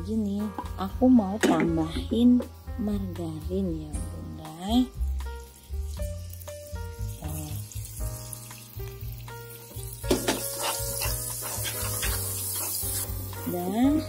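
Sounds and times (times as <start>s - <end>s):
background music with bass: 0.0s - 14.0s
margarine sizzling in a pan: 0.0s - 14.0s
spatula scraping a pan: 10.2s - 13.4s.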